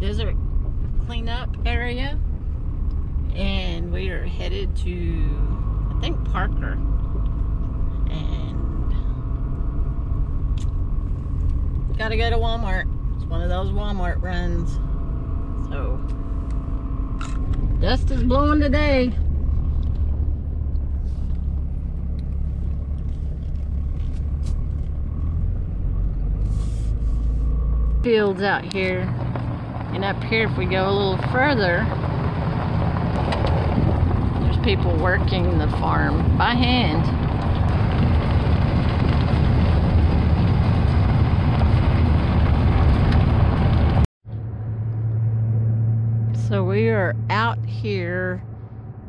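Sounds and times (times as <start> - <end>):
truck engine and tyres rumbling: 0.0 - 49.0
wind rushing at window: 28.5 - 44.1.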